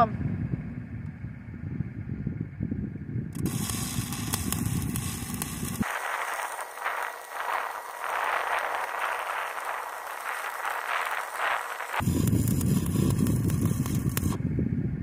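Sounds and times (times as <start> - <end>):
low rumble: 0.0 - 15.0
welding arc crackling and hissing: 3.4 - 14.4.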